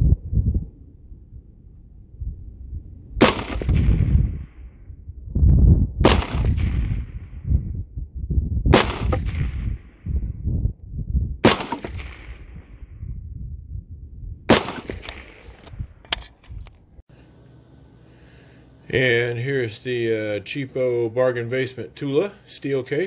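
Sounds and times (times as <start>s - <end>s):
wind rumbling on the microphone: 0.0s - 17.0s
rifle shots with echo: 3.2s - 4.6s, 6.0s - 7.4s, 8.7s - 10.0s, 11.4s - 12.7s, 14.5s - 15.6s.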